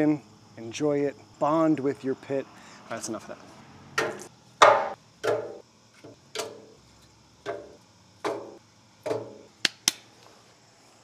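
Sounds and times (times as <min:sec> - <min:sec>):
wood knocking in steel firebox: 0:04.0 - 0:06.8, 0:07.4 - 0:09.4.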